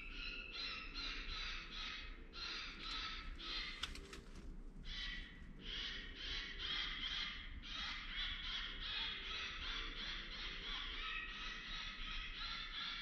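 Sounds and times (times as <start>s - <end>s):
faint rustling clicks: 3.6s - 4.6s.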